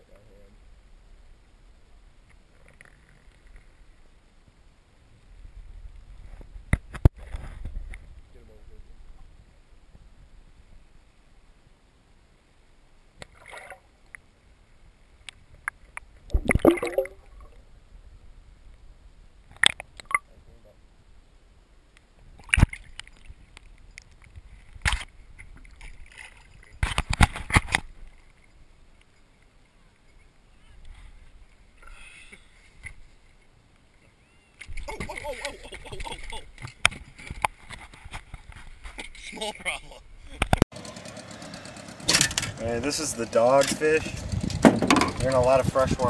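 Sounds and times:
water sloshing and splashing: 0:13.2 - 0:13.9, 0:16.2 - 0:17.6, 0:22.3 - 0:28.6
sharp knocks: 0:44.6 - 0:45.2.

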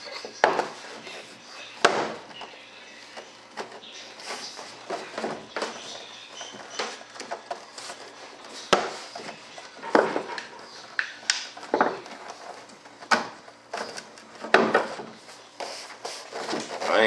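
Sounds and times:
light scraping and rubbing: 0:02.9 - 0:10.9.

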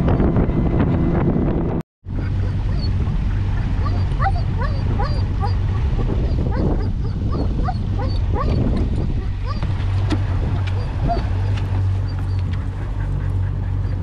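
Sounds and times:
steady low hum: 0:02.1 - 0:14.0
dog whining: 0:03.7 - 0:09.7, 0:10.5 - 0:12.5.

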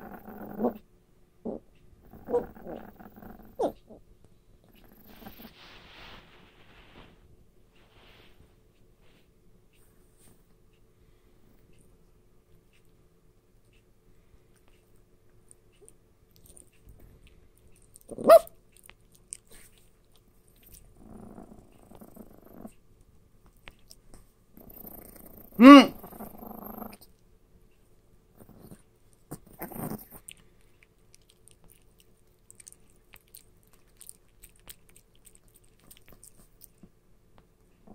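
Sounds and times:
dogs growling: 0:00.0 - 0:00.8, 0:01.4 - 0:04.0, 0:04.6 - 0:05.6, 0:20.6 - 0:22.8, 0:24.5 - 0:27.1, 0:28.3 - 0:30.4
dog yapping: 0:03.6 - 0:03.8, 0:18.1 - 0:18.6.

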